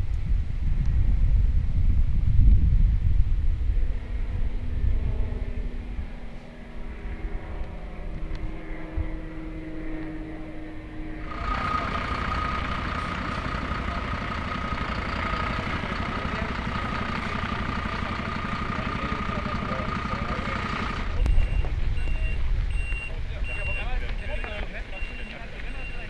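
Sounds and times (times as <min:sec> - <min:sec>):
steady high whine: 0:00.0 - 0:26.0
vehicle engines idling: 0:03.0 - 0:26.0.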